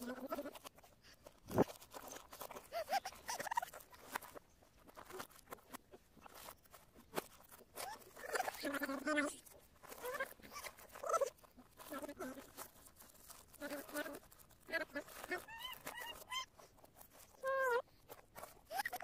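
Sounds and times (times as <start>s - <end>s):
foil wrapping paper crinkling: 0.0s - 19.0s
baby squealing: 2.7s - 3.9s, 10.0s - 12.5s, 15.0s - 16.5s, 18.7s - 19.0s.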